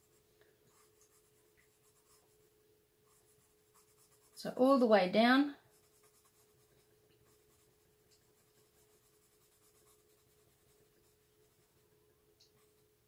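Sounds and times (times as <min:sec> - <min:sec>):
pencil scratching on paper: 0:00.0 - 0:02.3, 0:03.1 - 0:04.4, 0:05.7 - 0:11.8
faint hum: 0:00.0 - 0:13.0.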